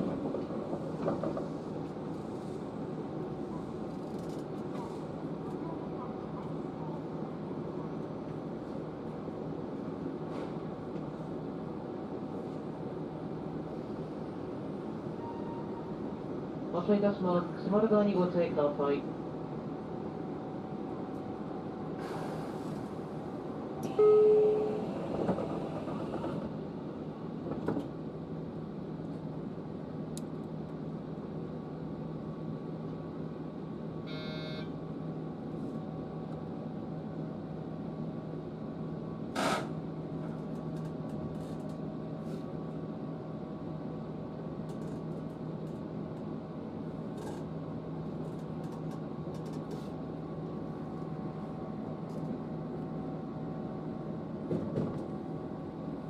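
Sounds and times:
train doors closing clunk: 0.0 - 1.6, 23.8 - 26.6, 39.3 - 40.5, 54.4 - 55.2
train electrical hum: 0.0 - 56.0
beeping tone: 23.9 - 24.7.

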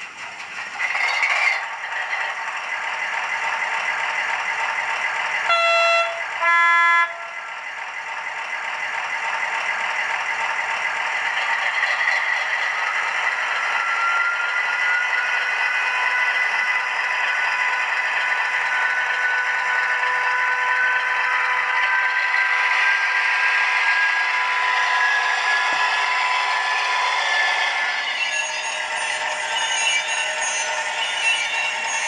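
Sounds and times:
model locomotive diesel engine idling: 0.0 - 32.0
horn blasts: 5.5 - 7.5.

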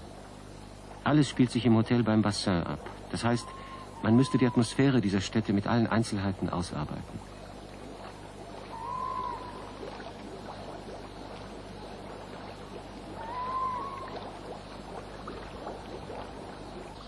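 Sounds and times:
low outdoor hiss: 0.0 - 17.0
whistle-like call: 3.2 - 4.9, 8.7 - 9.8, 13.2 - 14.3.

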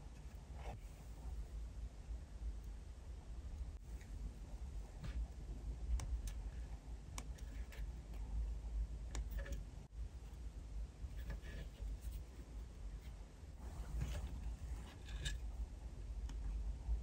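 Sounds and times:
steady low rumble: 0.0 - 11.2.

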